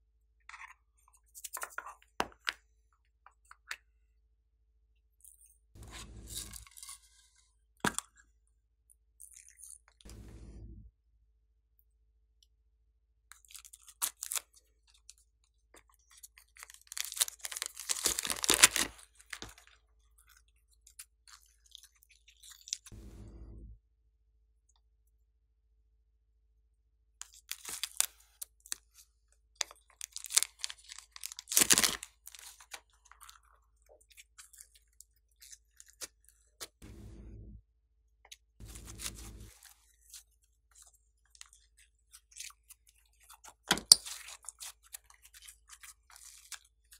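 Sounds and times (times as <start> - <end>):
slime crackling: 16.9 - 18.9, 30.1 - 32.6.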